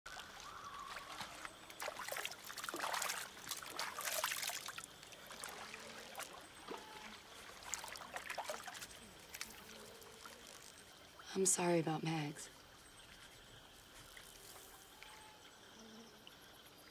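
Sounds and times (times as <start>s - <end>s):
hands splashing in water: 0.1s - 10.6s
water dripping: 0.1s - 12.1s.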